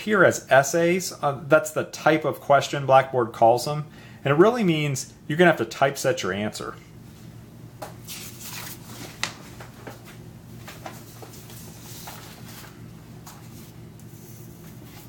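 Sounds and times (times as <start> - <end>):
steady low hum: 0.0 - 15.0
paper rustling: 8.0 - 15.0.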